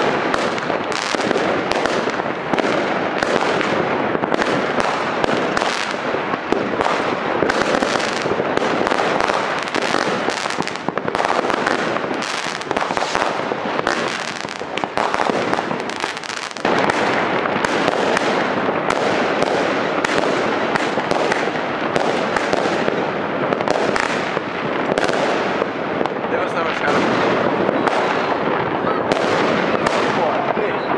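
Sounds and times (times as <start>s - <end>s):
fireworks crackling and bursting: 0.0s - 30.9s.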